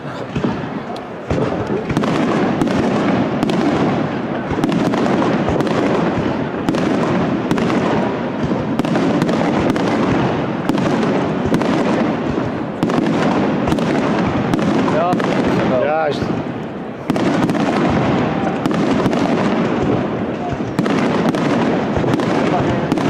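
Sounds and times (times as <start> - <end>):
firework crackling: 0.0 - 23.0
firework shells bursting: 0.3 - 23.0.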